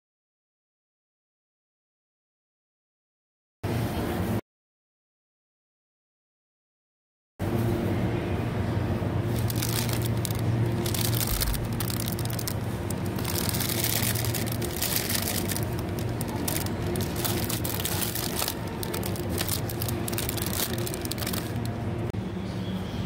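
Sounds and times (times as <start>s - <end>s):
steady low hum: 7.4s - 22.5s
plastic bags crinkling: 9.3s - 21.8s.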